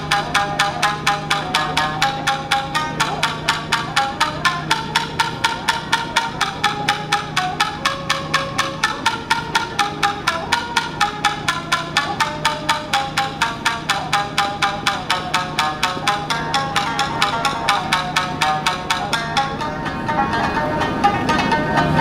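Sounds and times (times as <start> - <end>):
plectrum sharp clicks: 0.0 - 20.6
shamisen plucked melody: 0.0 - 22.0
steady low hum: 0.0 - 22.0.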